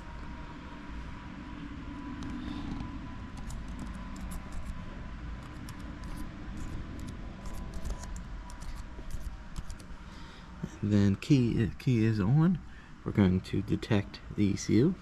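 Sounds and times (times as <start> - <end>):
faint steady whine: 0.0 - 15.0
low background hum: 0.0 - 15.0
laptop keyboard typing: 2.2 - 4.8, 5.4 - 10.0.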